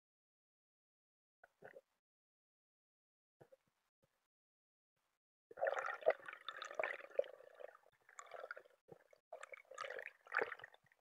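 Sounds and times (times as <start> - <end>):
underwater bubbling and gurgling: 5.5 - 11.0.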